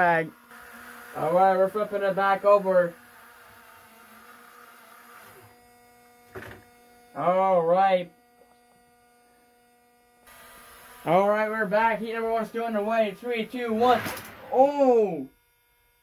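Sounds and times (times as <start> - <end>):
person vocal sound: 13.7 - 15.3.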